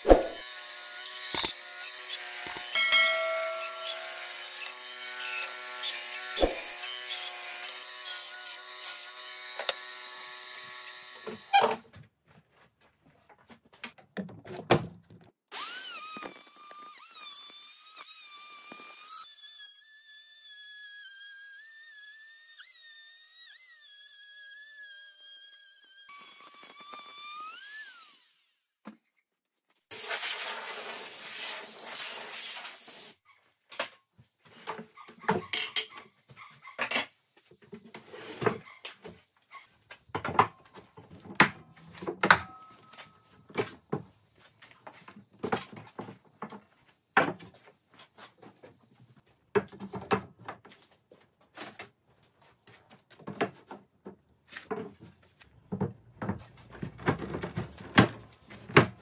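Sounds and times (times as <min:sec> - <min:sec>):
wood router running: 0:15.5 - 0:19.2.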